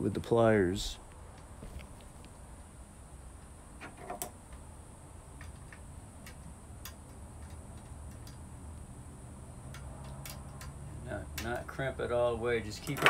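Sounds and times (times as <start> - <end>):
low steady hum: 0.0 - 13.0
metal strip ticking under pliers: 5.4 - 8.4, 9.6 - 10.8, 11.4 - 11.7.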